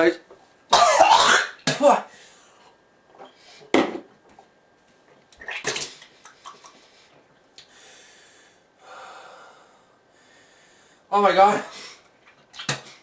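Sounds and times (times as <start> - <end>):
person spluttering: 5.4 - 6.6.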